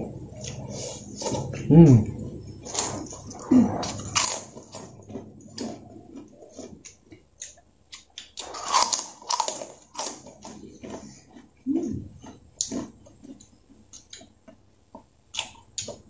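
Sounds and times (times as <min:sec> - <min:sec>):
crunching crispy crackers: 0:02.6 - 0:14.5.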